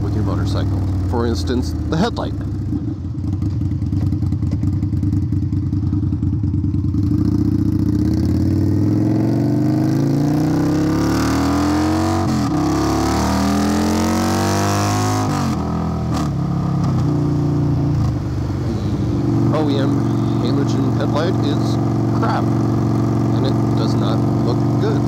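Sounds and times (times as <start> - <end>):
motorcycle engine revving through gears: 0.0 - 25.0.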